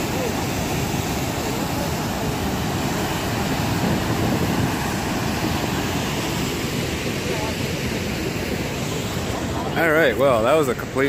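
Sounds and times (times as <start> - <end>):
roar of river rapids and waterfall: 0.0 - 11.0
wind buffeting microphone: 2.2 - 6.7.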